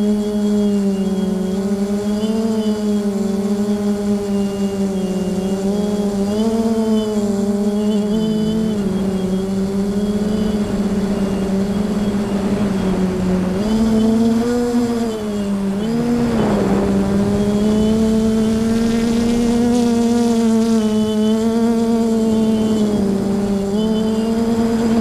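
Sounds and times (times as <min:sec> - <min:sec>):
drone motors humming: 0:00.0 - 0:25.0
wind noise rush: 0:09.7 - 0:21.3.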